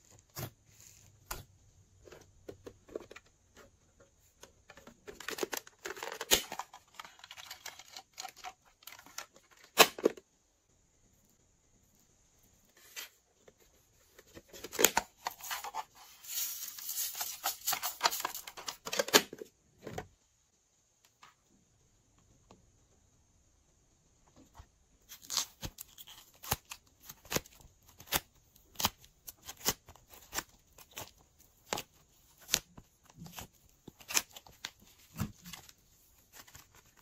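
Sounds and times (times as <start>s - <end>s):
crinkly scraping and rustling: 2.0s - 9.7s.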